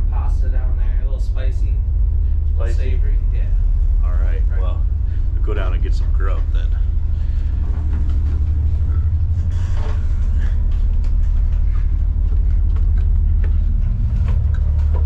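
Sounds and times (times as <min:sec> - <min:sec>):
boat diesel engine drone: 0:00.0 - 0:15.0.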